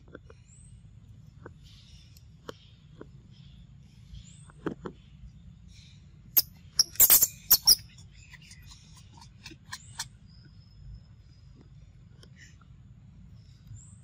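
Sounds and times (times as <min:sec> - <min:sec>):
monkeys squeaking: 0:06.4 - 0:10.1.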